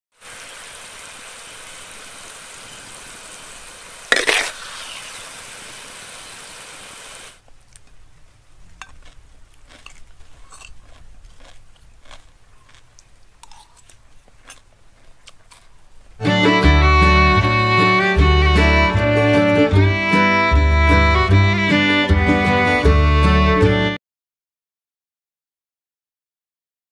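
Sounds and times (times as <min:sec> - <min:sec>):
food sizzling in frying: 0:00.1 - 0:07.4
crunching and chewing fried fish: 0:07.5 - 0:16.2
music: 0:16.2 - 0:24.0.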